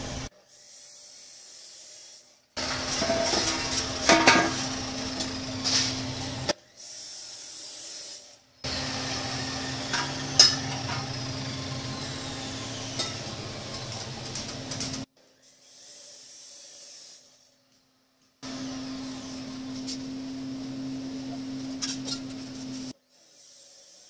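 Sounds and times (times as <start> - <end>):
machine hum with hiss: 0.0 - 6.6, 8.6 - 15.1, 18.4 - 24.0.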